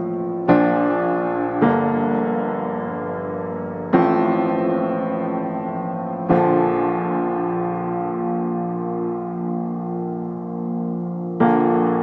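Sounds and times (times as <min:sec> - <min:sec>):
slow piano chords: 0:00.0 - 0:12.0.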